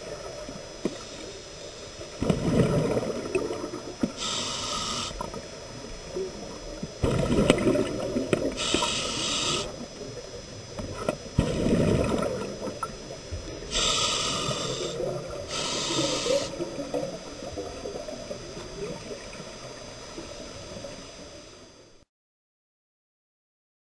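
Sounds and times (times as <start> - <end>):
regulator inhalation hiss: 0.8 - 2.1, 4.0 - 5.7, 8.4 - 10.0, 13.6 - 17.1
exhaled bubbles gurgling: 2.0 - 21.2.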